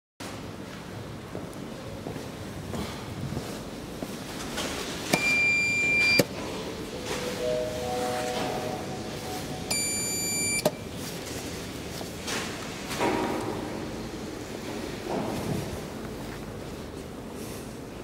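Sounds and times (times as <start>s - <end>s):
elevator call button beeps: 5.1s - 6.3s, 7.2s - 10.9s
three-note chime: 7.2s - 10.2s.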